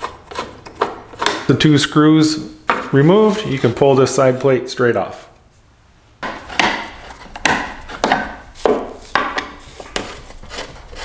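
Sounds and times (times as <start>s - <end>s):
plastic covers scraping and knocking: 6.2s - 11.0s.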